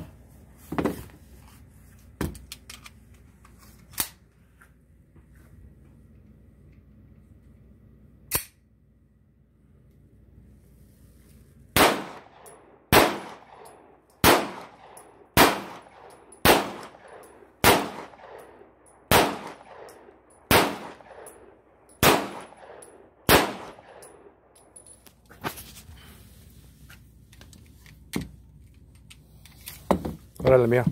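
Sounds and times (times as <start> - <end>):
pistol shots with ringing echo: 11.8 - 24.4.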